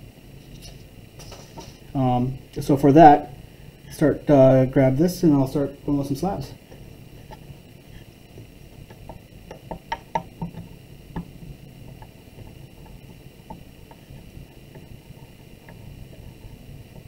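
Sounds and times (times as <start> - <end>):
dowel tapping on wooden board: 8.9 - 11.3.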